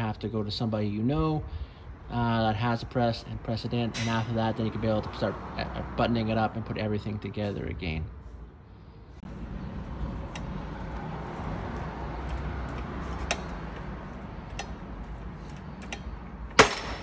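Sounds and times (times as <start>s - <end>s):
loud pop of bearing: 16.5s - 17.0s.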